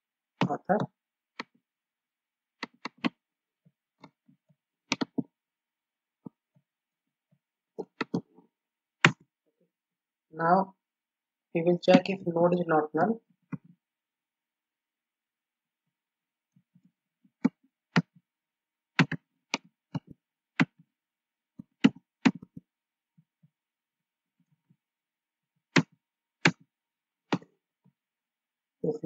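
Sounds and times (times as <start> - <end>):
keyboard keystrokes: 4.9 - 5.2.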